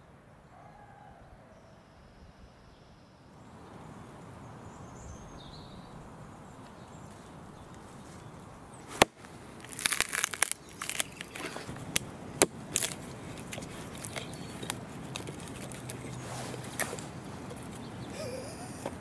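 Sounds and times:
wood cracking and splitting: 0:08.8 - 0:18.1
axe striking log: 0:08.9 - 0:09.2.

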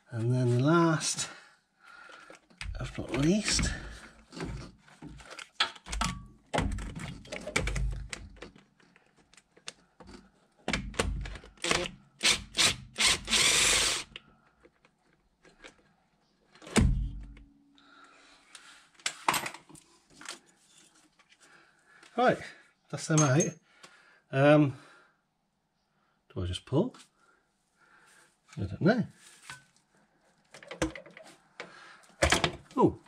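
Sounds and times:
power tool whirring: 0:11.6 - 0:14.2.

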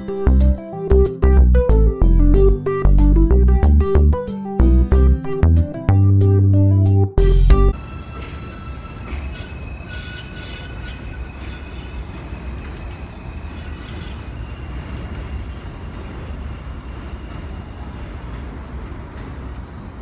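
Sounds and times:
train wheels rumbling on rail: 0:07.7 - 0:20.0.

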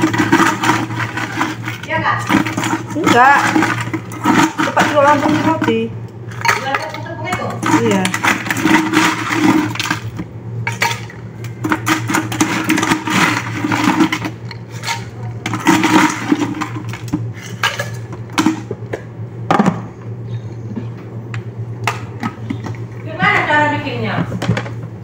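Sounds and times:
plastic scoop scraping in tub: 0:00.0 - 0:05.9, 0:07.4 - 0:11.1, 0:11.7 - 0:18.0
steady low hum: 0:00.0 - 0:25.0.

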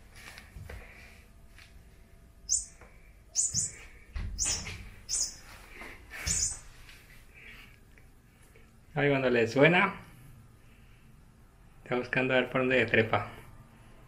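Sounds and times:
toy mouse high-pitched squeaks: 0:02.5 - 0:02.7, 0:03.4 - 0:03.8, 0:04.4 - 0:05.4, 0:06.3 - 0:06.6.

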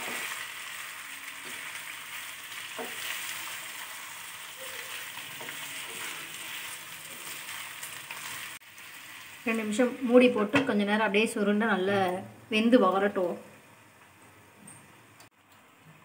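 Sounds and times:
chicken sizzling in hot oil: 0:00.0 - 0:10.3
wooden spatula scraping: 0:04.6 - 0:08.5.

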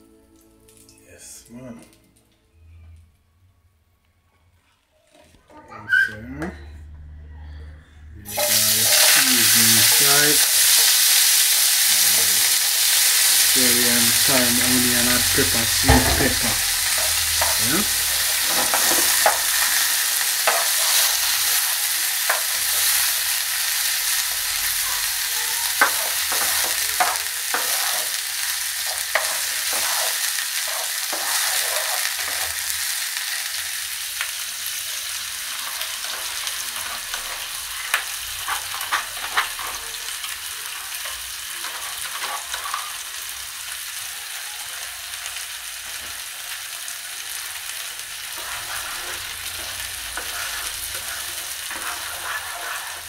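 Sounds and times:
vegetables sizzling in hot oil: 0:08.3 - 0:53.0
spatula tapping and scraping pan: 0:25.8 - 0:28.2, 0:48.4 - 0:53.0.

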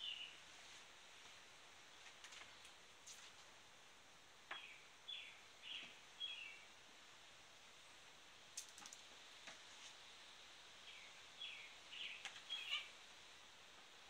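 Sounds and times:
faint bird chirps: 0:10.9 - 0:13.0.

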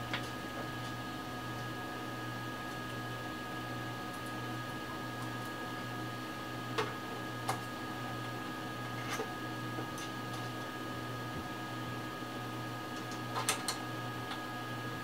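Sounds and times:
steady electrical hum: 0:00.0 - 0:15.0.

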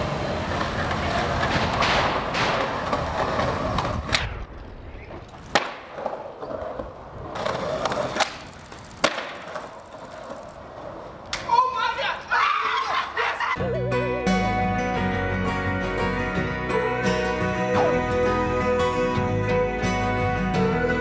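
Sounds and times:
skateboard wheels rolling on concrete: 0:00.0 - 0:13.6
skateboard clacking on ground: 0:00.1 - 0:12.0.

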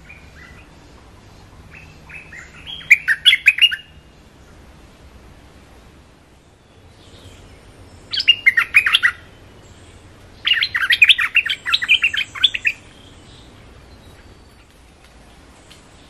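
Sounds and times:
bird singing bubbling notes: 0:00.0 - 0:04.6, 0:06.6 - 0:14.6.

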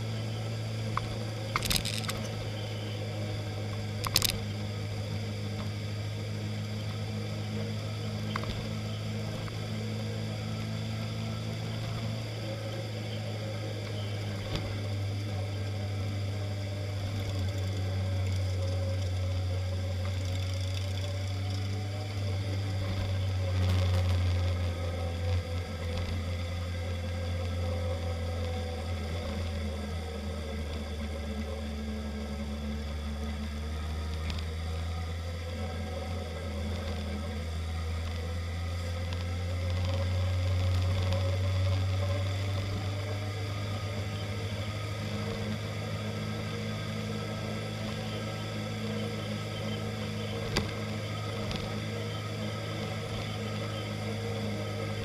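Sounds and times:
motorcycle engine running: 0:00.0 - 0:55.0.

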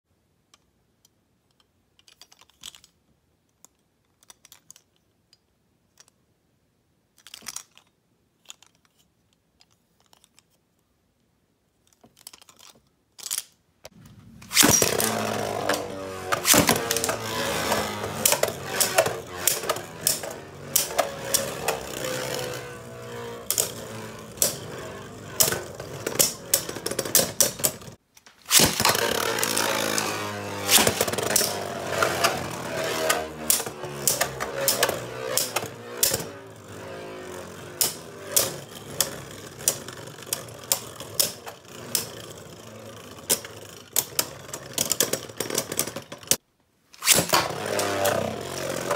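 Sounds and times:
spinning tops whirring: 0:14.0 - 0:46.4, 0:47.0 - 0:48.9
spinning tops clacking together: 0:14.2 - 0:46.4, 0:47.0 - 0:48.9.

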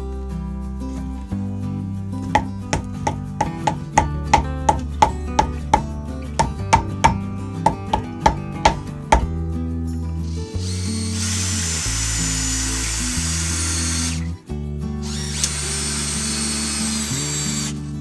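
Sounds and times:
background music: 0:00.0 - 0:18.0
power drill driving screws: 0:10.4 - 0:14.3, 0:15.0 - 0:17.8.

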